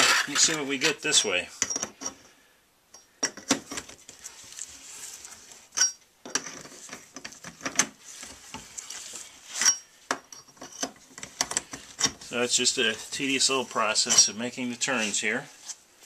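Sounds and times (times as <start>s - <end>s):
pipes scraping as they rotate: 0.0s - 1.2s.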